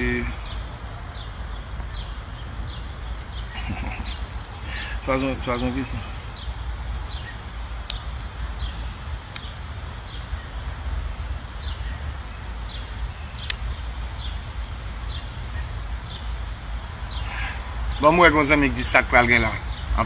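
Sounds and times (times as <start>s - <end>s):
bird chirping: 0.0s - 20.0s
faint clicks: 13.4s - 13.6s.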